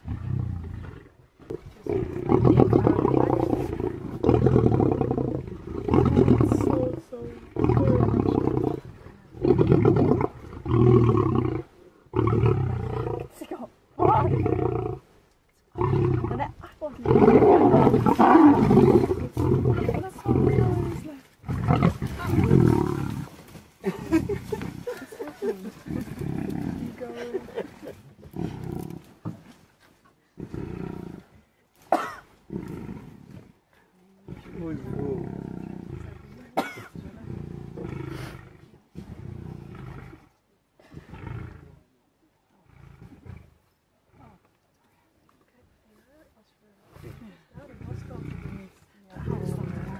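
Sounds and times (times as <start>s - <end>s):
lions snarling: 0.0s - 13.4s, 14.0s - 15.0s, 15.7s - 23.4s, 24.1s - 27.6s, 28.2s - 29.2s, 30.4s - 31.4s, 32.4s - 33.6s, 34.2s - 40.4s, 42.6s - 44.5s, 46.9s - 49.9s
lions growling: 0.0s - 15.1s, 15.7s - 29.4s, 30.3s - 31.5s, 32.4s - 41.9s, 42.6s - 44.6s, 46.9s - 49.9s.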